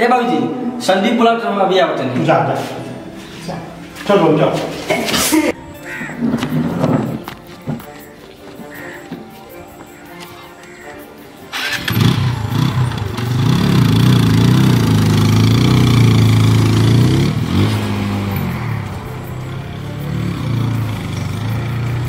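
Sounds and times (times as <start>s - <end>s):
motorcycle engine revving: 11.5s - 22.0s.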